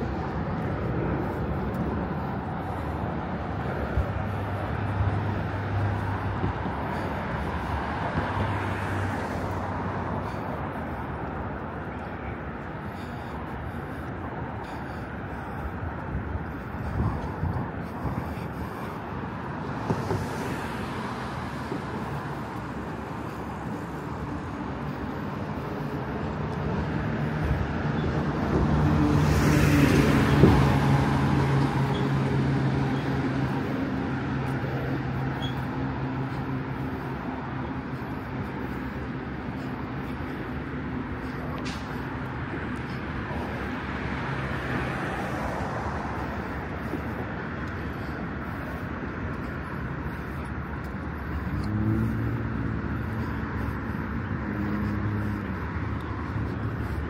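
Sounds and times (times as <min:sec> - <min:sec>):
steady traffic noise: 0:00.0 - 0:57.0
vehicle engine passing close: 0:51.2 - 0:57.0.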